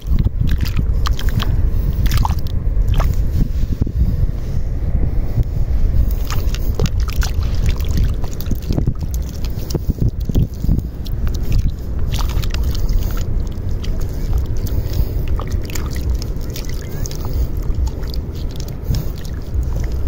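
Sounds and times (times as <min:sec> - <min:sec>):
wet mud squelching: 0:00.0 - 0:03.4, 0:06.0 - 0:20.0
wind rumble on microphone: 0:00.0 - 0:20.0
shallow seawater sloshing: 0:06.0 - 0:20.0.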